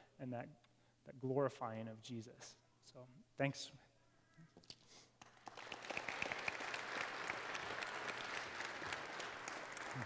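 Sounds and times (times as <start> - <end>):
crowd applauding: 5.2 - 10.0.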